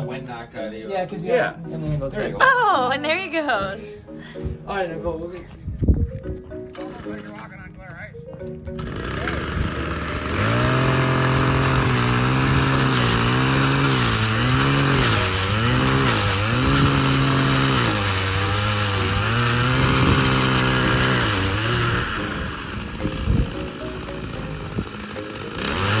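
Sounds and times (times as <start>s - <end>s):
ice auger engine running: 8.8s - 26.0s.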